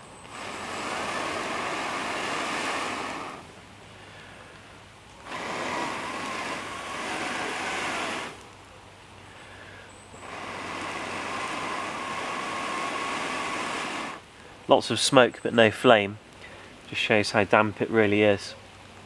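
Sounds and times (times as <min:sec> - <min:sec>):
person blowing hard: 0:00.0 - 0:04.3, 0:05.2 - 0:08.4, 0:10.2 - 0:14.2.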